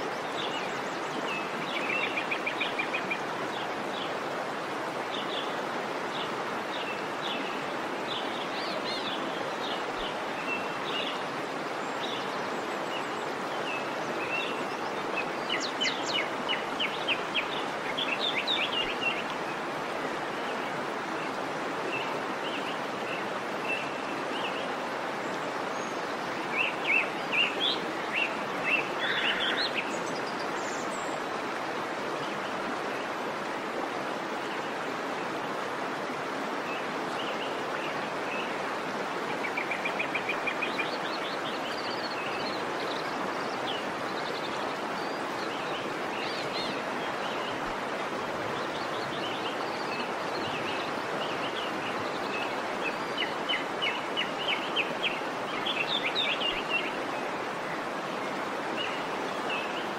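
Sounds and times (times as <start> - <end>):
rushing falling water: 0.0 - 59.9
songbirds chirping: 0.0 - 59.9.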